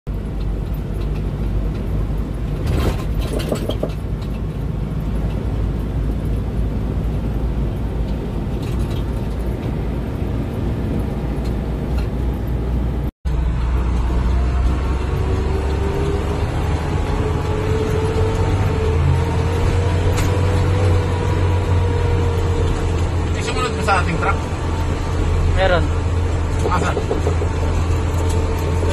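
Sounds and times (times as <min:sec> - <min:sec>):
rattling in cab: 0:00.1 - 0:13.1, 0:22.0 - 0:28.9
vehicle engine and tyres rumbling: 0:00.1 - 0:28.9.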